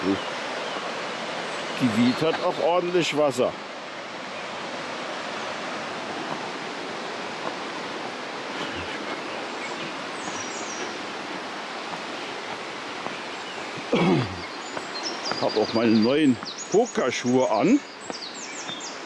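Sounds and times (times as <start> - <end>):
river rushing: 0.0 - 19.0.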